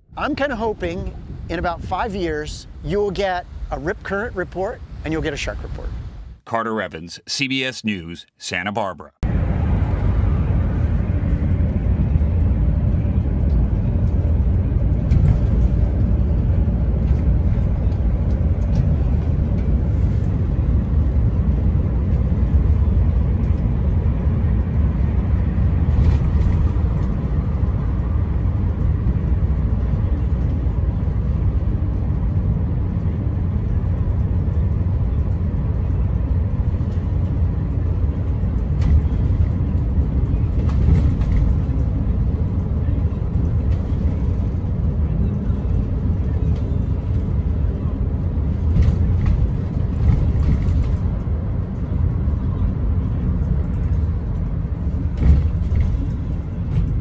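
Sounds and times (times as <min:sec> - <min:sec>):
road and engine noise in car: 0:00.0 - 0:06.4, 0:09.2 - 0:57.0.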